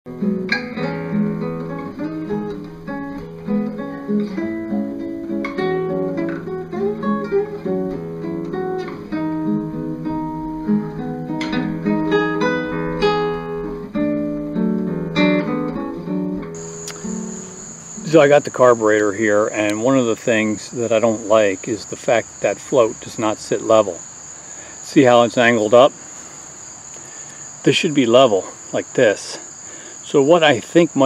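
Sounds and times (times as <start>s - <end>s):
acoustic guitar music: 0.1s - 24.0s.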